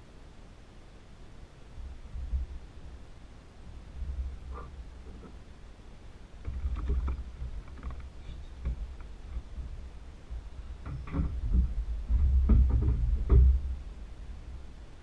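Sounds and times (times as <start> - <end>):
board knocking against kayak: 6.4 - 13.8.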